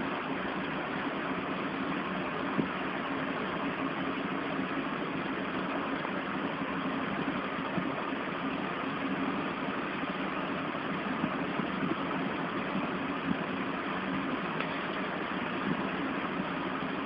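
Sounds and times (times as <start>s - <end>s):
droning hum with hiss: 0.0s - 17.0s.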